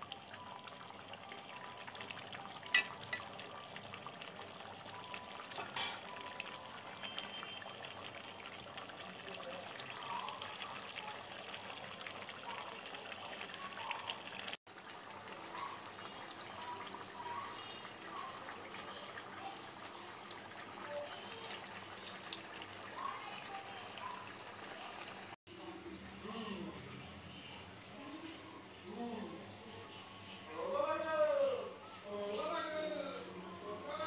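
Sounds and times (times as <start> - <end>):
curry bubbling in a pot: 0.0 - 25.4.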